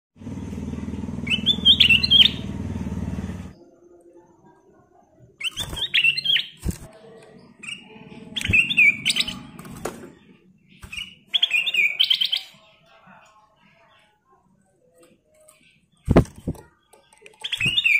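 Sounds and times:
bird singing whistled phrases: 1.3s - 2.5s, 5.4s - 6.6s, 7.6s - 9.4s, 10.8s - 12.6s, 17.4s - 17.9s.

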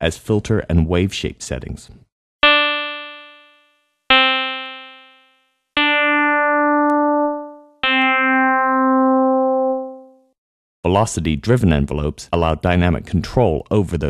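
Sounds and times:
synthesizer notes: 2.4s - 10.3s.

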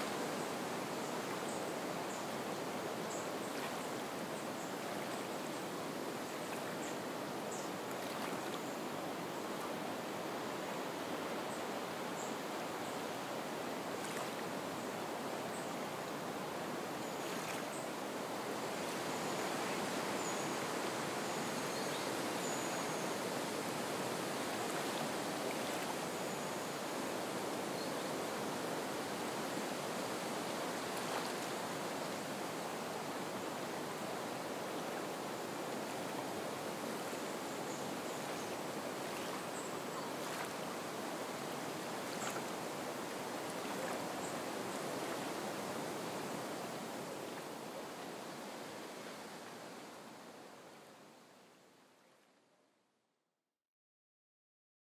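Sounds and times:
soft wind over reeds: 0.0s - 52.5s
water lapping at shore: 2.9s - 8.8s, 13.2s - 15.3s, 16.0s - 21.1s, 22.8s - 26.2s, 30.3s - 49.6s.

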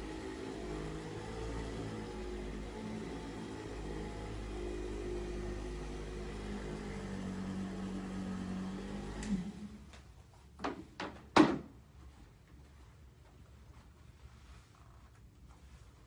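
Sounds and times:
electric massager motor hum: 0.0s - 9.9s.

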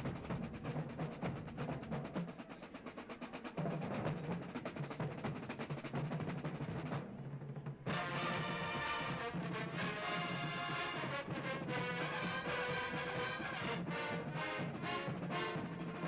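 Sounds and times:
snare drums: 0.0s - 16.0s
brass horns playing: 7.9s - 16.0s.

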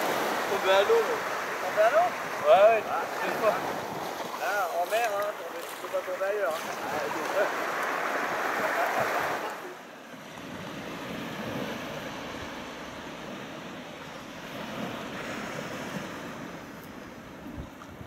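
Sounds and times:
sea waves washing onto beach: 0.0s - 18.0s
wind on microphone: 14.4s - 18.0s.

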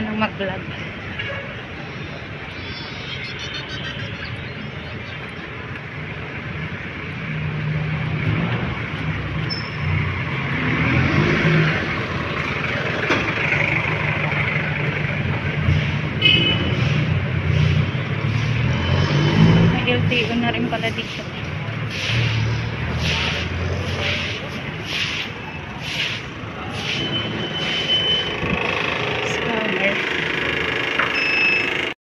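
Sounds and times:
street traffic noise: 0.0s - 32.0s
diesel engine driving past: 6.4s - 31.0s.

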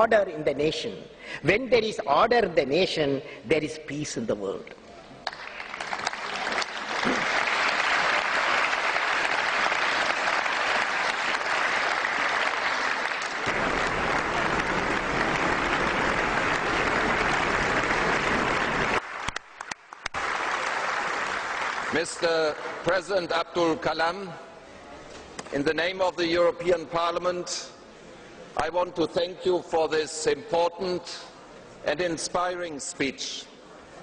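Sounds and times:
large audience applauding: 5.2s - 22.9s.

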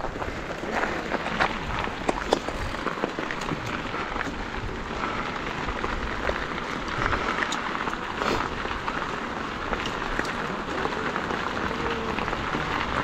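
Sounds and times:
bike clicks and rattles: 0.0s - 13.0s
bike tyres crunching on gravel: 0.0s - 13.0s.

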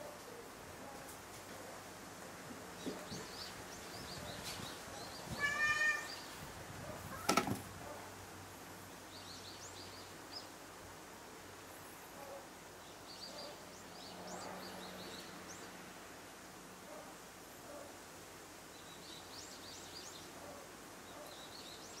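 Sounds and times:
small birds chirping: 2.7s - 7.3s, 8.8s - 10.8s, 11.7s - 15.8s, 18.6s - 22.0s
cat meowing: 5.3s - 6.2s.

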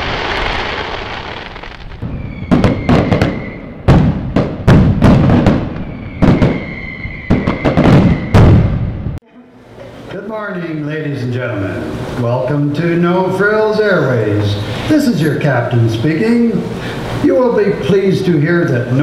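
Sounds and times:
fireworks bangs and crackle: 0.0s - 9.2s
high steady whistling tone: 2.0s - 3.8s, 5.8s - 8.5s.

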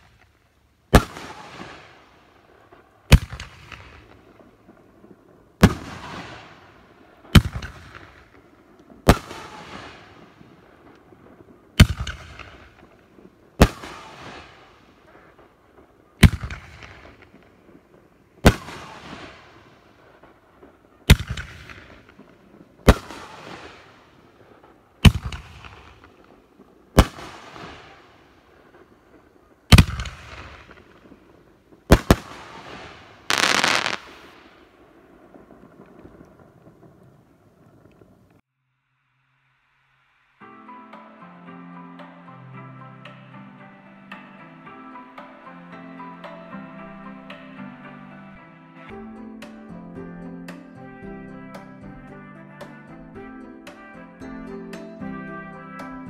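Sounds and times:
firework bangs: 0.9s - 38.3s.

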